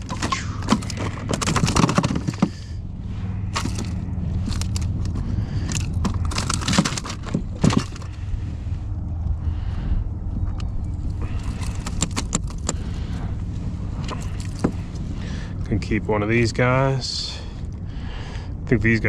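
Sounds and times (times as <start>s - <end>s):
fish and hook clattering on hull: 0.0s - 2.8s, 3.4s - 8.2s, 10.5s - 13.3s, 14.0s - 15.4s
low rumble: 0.0s - 19.0s.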